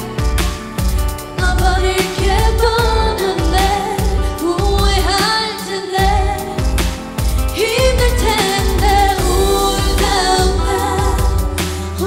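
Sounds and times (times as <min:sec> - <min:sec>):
pop backing track: 0:00.0 - 0:12.0
woman singing: 0:00.0 - 0:12.0.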